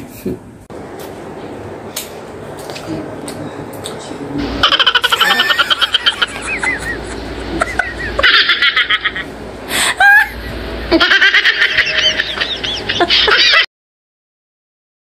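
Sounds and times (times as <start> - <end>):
high-pitched cackling laughter: 4.6 - 13.7.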